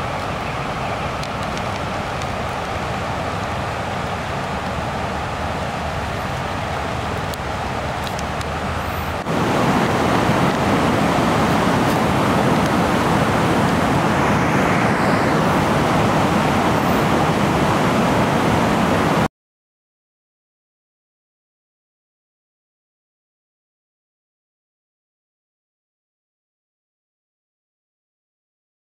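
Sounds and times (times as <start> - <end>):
mountain stream rushing: 0.0 - 19.3.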